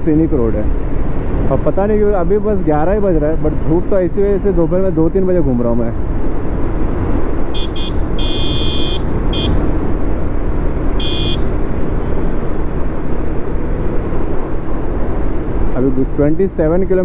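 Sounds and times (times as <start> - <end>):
motorcycle engine and road noise: 0.0 - 17.0
motorcycle horn honking: 7.6 - 9.6, 11.0 - 11.5.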